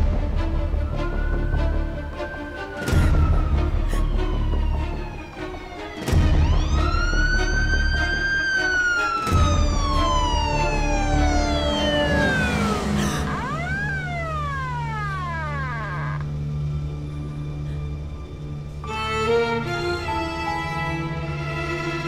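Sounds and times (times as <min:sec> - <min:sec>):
siren-like tone sliding down: 0:00.9 - 0:16.5
rising and falling tone: 0:06.4 - 0:16.6
low steady drone: 0:09.3 - 0:22.0.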